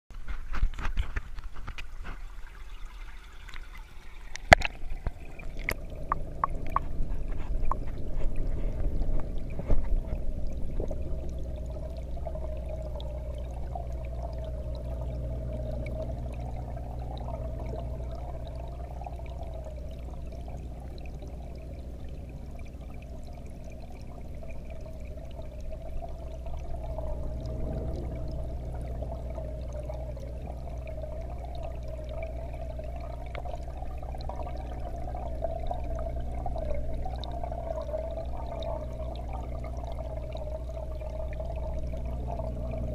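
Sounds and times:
underwater hum: 0.1s - 42.9s
wavering tone: 9.4s - 42.9s.

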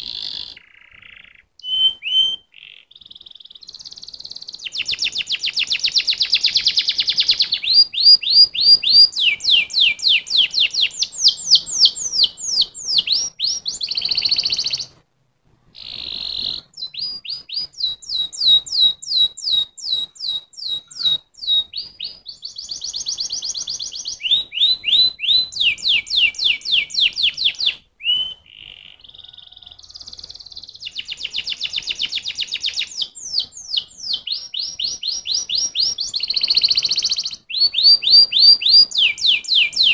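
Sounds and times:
canary singing trills: 0.0s - 15.0s, 15.8s - 39.9s.

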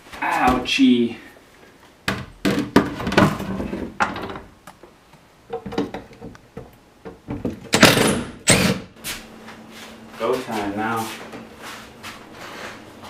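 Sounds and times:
wooden knocks and clunks: 2.1s - 4.5s, 5.5s - 8.1s.

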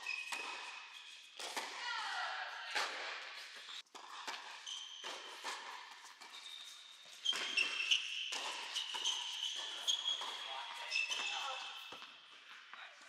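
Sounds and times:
sneakers squeaking on court: 0.0s - 1.7s, 3.4s - 12.6s
tennis ball hit by racket: 1.4s - 1.8s.

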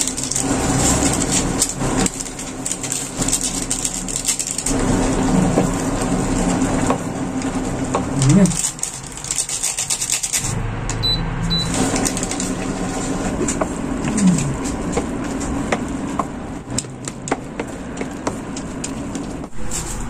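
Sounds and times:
chopsticks scraping metal pot: 7.8s - 10.6s
low hum: 10.4s - 16.7s.

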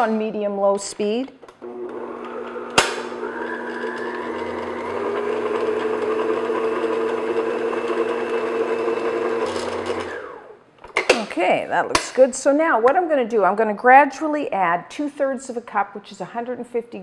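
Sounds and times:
stand mixer motor humming: 1.6s - 10.6s.

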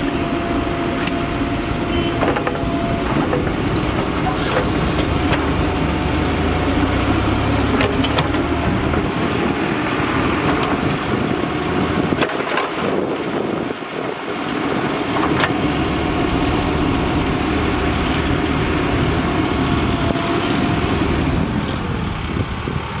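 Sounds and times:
diesel engine running under load: 0.0s - 23.0s
sharp knocks of backhoe digging: 2.0s - 5.9s, 7.6s - 9.5s, 12.1s - 13.1s.

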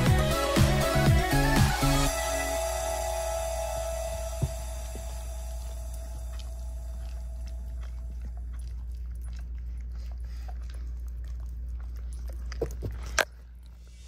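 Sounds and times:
steady low hum: 0.8s - 14.0s
dog chewing mouth clicks: 5.9s - 13.8s.

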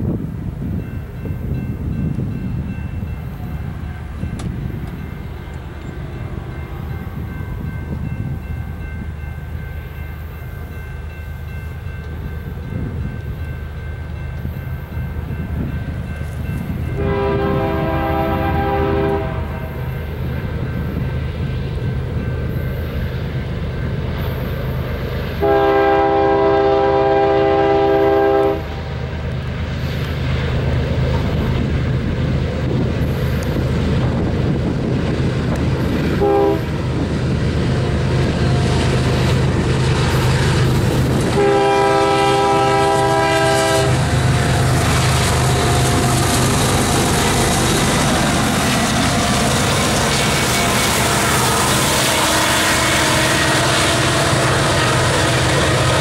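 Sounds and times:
diesel locomotive rumble: 0.0s - 56.0s
train air horn blasts: 17.0s - 19.8s, 25.4s - 28.8s, 36.0s - 36.8s, 41.2s - 44.2s, 50.1s - 56.0s.

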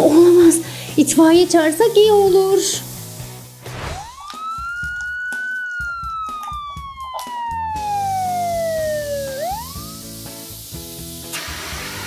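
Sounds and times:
light background music: 0.0s - 12.0s
fire engine siren wailing: 3.9s - 10.1s.

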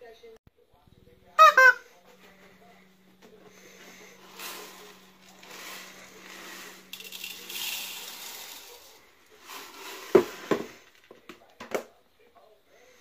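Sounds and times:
dry grains pouring into bowl: 3.6s - 11.1s.

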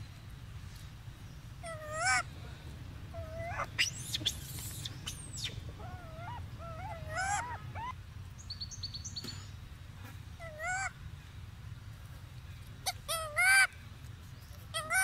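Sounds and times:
low steady rumble: 0.0s - 15.0s
wavering high-pitched animal calls: 1.6s - 2.3s, 3.1s - 8.0s, 10.4s - 10.9s, 14.7s - 15.0s.

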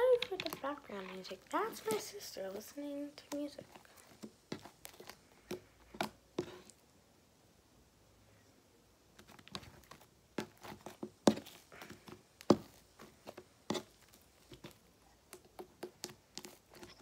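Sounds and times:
slime squishing with wet pops: 3.1s - 6.8s, 9.2s - 17.0s.

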